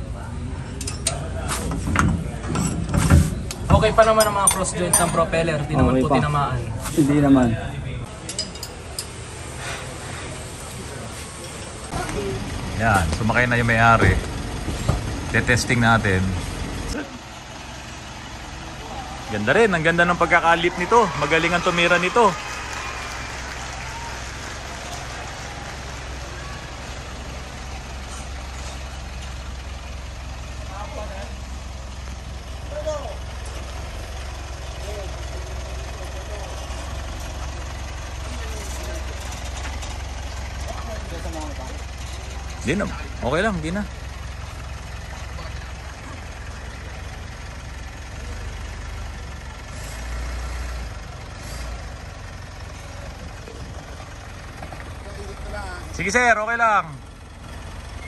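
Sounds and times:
truck engine running at low revs: 0.0s - 58.0s.

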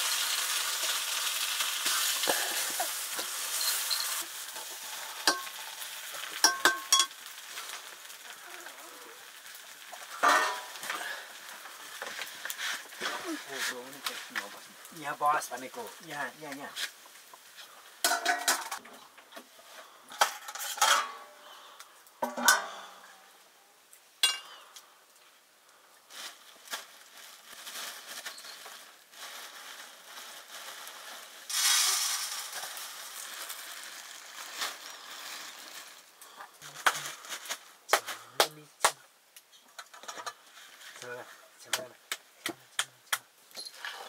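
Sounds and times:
food sizzling: 0.0s - 44.0s
metal utensils clinking on cookware: 1.9s - 7.3s, 10.0s - 10.8s, 18.0s - 18.8s, 20.1s - 21.3s, 22.2s - 22.9s, 24.2s - 24.6s.

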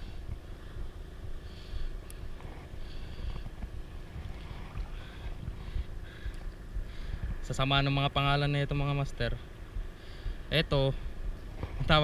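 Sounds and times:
wind rumbling on microphone: 0.0s - 12.0s
sea water lapping at shore: 2.2s - 7.4s.

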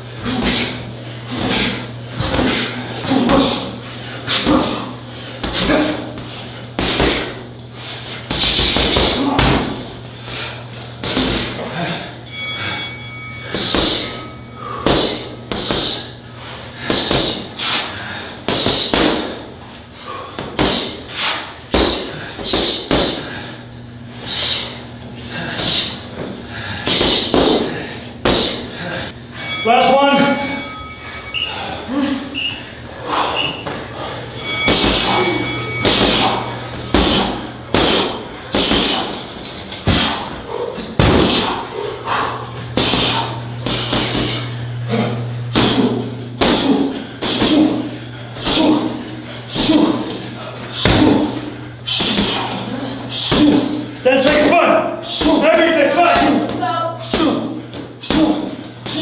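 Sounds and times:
heavy thuds on punching bag: 5.4s - 7.4s, 8.3s - 10.0s, 14.8s - 16.0s, 16.8s - 17.5s, 18.5s - 19.4s, 20.4s - 21.0s, 21.7s - 23.3s, 26.2s - 28.6s, 34.6s - 41.6s, 42.7s - 44.4s, 45.5s - 50.2s, 50.8s - 52.5s
strikes on a heavy bag: 36.9s - 39.1s.

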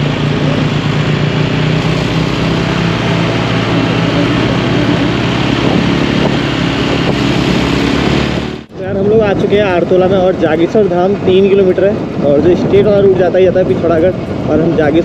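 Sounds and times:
motorcycle engine running: 0.0s - 15.0s
road noise: 0.0s - 15.0s
wind noise: 1.3s - 15.0s.

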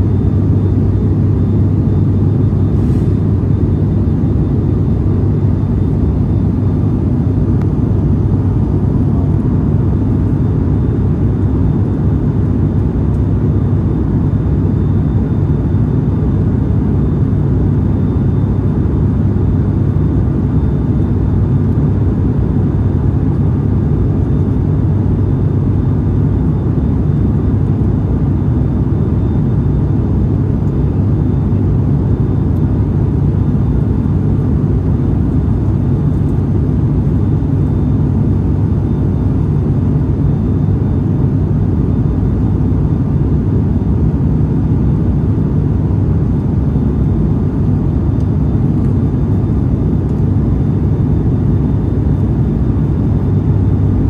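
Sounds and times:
airplane cabin engine drone: 0.0s - 54.0s.

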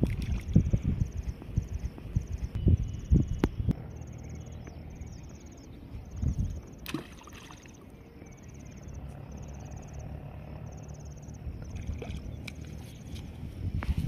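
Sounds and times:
insects trilling: 0.0s - 13.8s
hook splashing into water: 6.8s - 7.7s.

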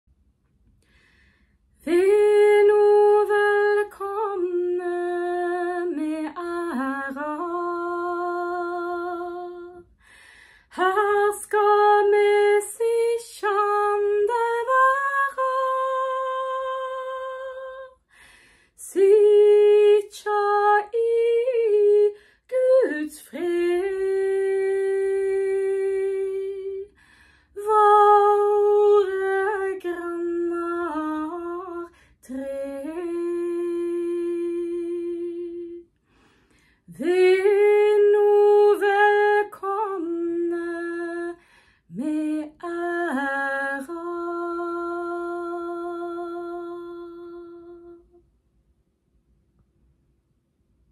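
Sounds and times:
woman singing unaccompanied: 1.8s - 9.9s, 10.7s - 18.0s, 18.8s - 27.0s, 27.6s - 35.9s, 36.9s - 48.2s.

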